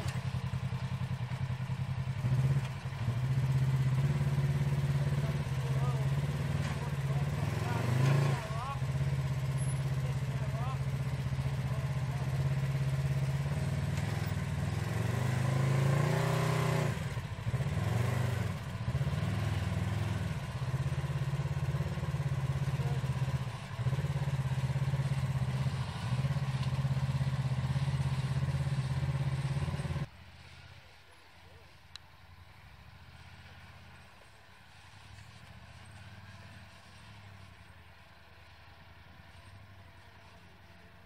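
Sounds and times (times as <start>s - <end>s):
atv engine running: 0.0s - 30.7s, 32.4s - 41.0s.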